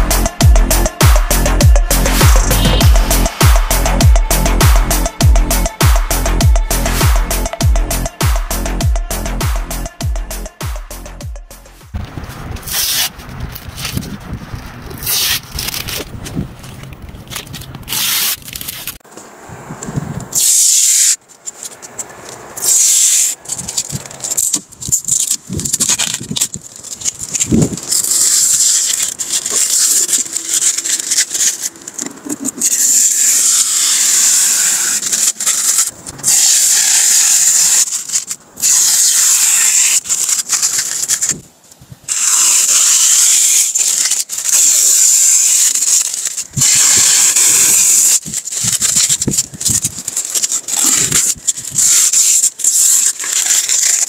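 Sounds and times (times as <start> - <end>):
plastic film peeling and crinkling: 11.8 - 19.1, 20.3 - 54.0.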